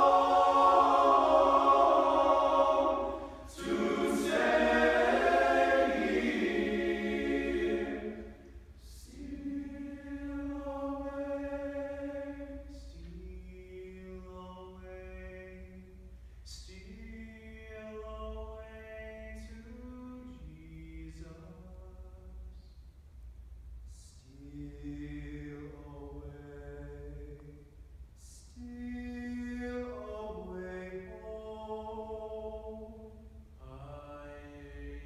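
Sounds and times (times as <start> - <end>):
men's chorus singing a cappella: 0.0 - 12.6.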